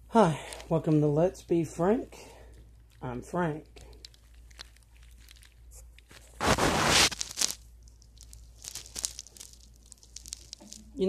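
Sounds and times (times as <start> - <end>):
small clicks and rustles: 2.5 - 6.4, 7.1 - 11.0
loud crunching rustle: 3.9 - 11.0.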